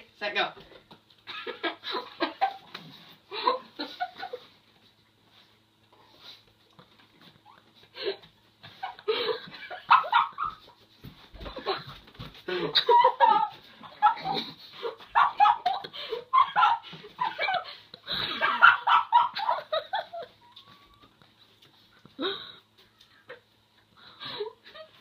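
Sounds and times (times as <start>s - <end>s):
young men laughing: 1.2s - 4.6s, 8.6s - 10.5s, 11.4s - 20.6s.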